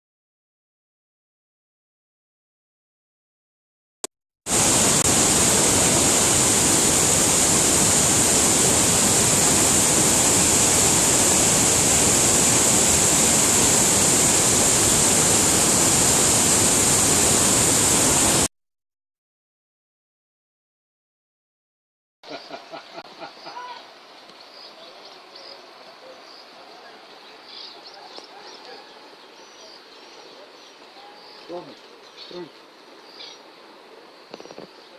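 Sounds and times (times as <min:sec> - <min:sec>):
floodwater rushing over weir: 0:04.5 - 0:18.5.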